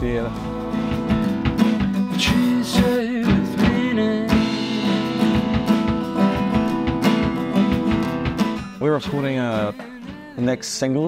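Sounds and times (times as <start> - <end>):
electric guitar: 0.0 - 10.5
drum kit beat: 0.0 - 10.6
man singing: 2.1 - 6.5, 8.8 - 11.0.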